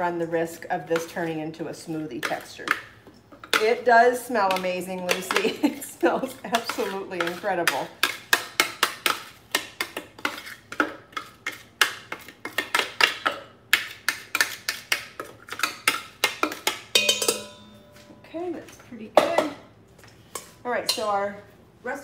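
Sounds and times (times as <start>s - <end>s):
metal bowl ringing clink: 17.0s - 18.3s, 20.8s - 21.2s.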